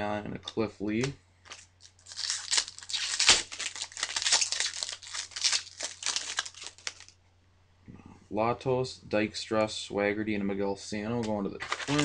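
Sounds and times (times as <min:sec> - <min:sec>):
faint low hum: 0:00.0 - 0:12.0
foil wrapper tearing and crinkling: 0:01.4 - 0:07.2, 0:11.6 - 0:12.0.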